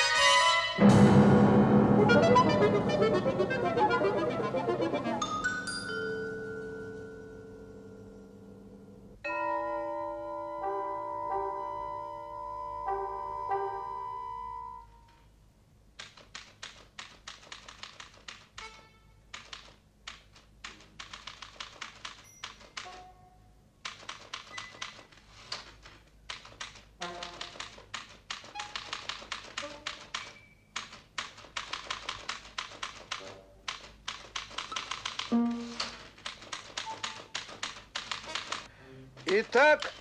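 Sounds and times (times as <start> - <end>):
short musical notes: 0.6 - 15.1
typewriter keys clacking: 16.0 - 23.0, 23.8 - 38.7, 39.3 - 40.0.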